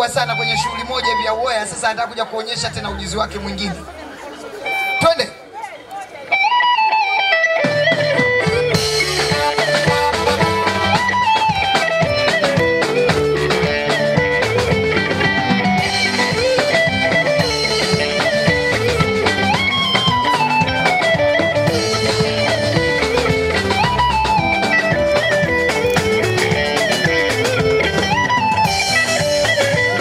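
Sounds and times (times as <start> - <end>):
electric guitar lead melody: 6.3 - 30.0.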